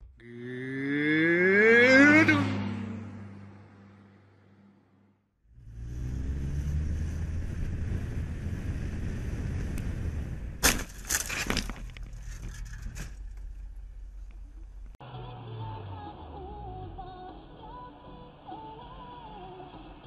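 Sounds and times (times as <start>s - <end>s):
motorcycle engine revving: 0.2s - 10.4s
motorcycle crash: 10.6s - 13.7s
knocks and scraping: 10.6s - 15.0s.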